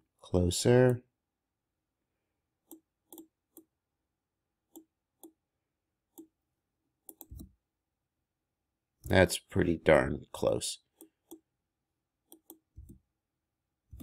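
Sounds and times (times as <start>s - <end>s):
faint computer mouse clicks: 7.0s - 7.5s, 12.3s - 13.0s.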